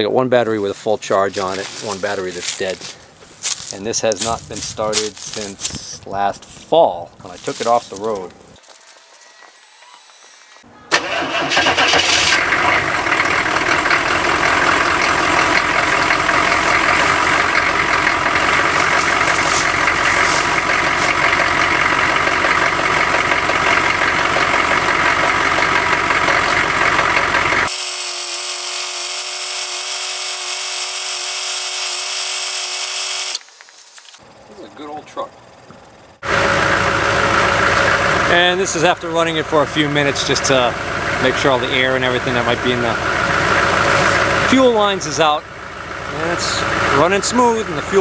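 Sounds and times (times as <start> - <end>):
diesel engine clatter: 10.9 - 27.7, 34.2 - 48.0.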